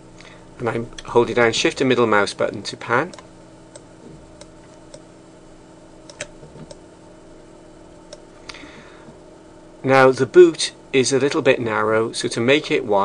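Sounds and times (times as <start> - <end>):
low electrical hum: 0.0 - 13.0.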